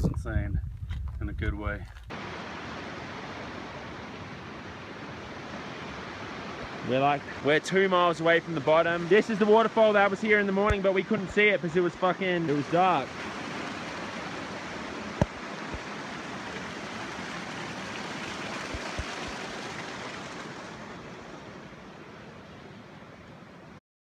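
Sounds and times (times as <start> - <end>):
creek and waterfall rushing: 2.1 - 23.8.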